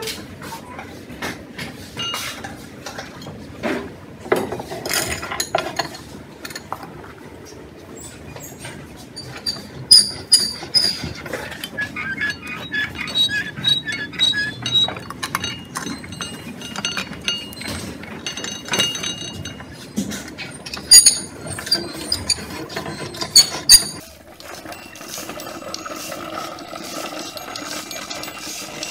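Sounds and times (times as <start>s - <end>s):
wood and cutlery clinking on china: 2.0s - 6.9s, 8.5s - 28.9s
rolling wooden cart rattling: 8.6s - 28.9s.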